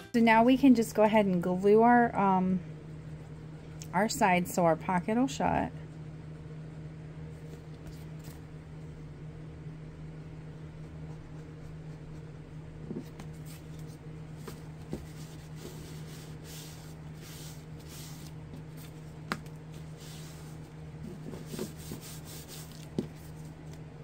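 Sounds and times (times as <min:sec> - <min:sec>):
steady low hum: 0:00.0 - 0:24.0
paper towel wiping paper: 0:13.1 - 0:19.1, 0:19.7 - 0:23.8.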